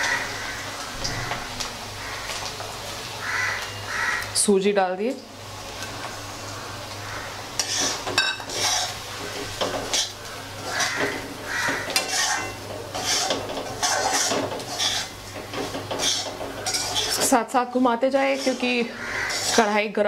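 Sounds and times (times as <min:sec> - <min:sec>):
ladle scraping a metal wok: 0:07.6 - 0:17.4, 0:18.2 - 0:19.8.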